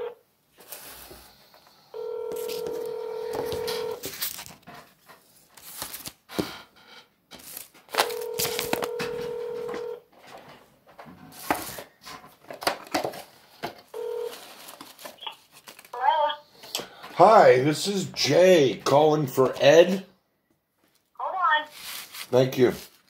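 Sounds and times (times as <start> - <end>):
telephone ringback tone: 1.9 - 4.0, 8.0 - 10.0, 13.9 - 14.4
phone line clicks: 8.1 - 10.0.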